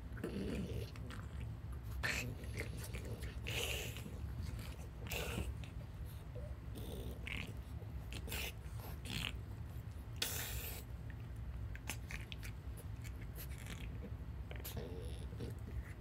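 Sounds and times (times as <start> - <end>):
steady low hum: 0.0 - 16.0
dogs breathing and snuffling: 0.1 - 16.0.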